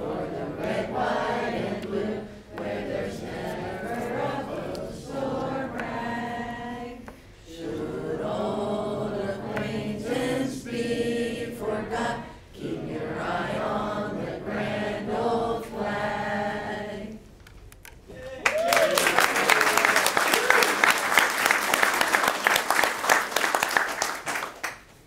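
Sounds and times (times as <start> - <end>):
children singing together: 0.0 - 17.2.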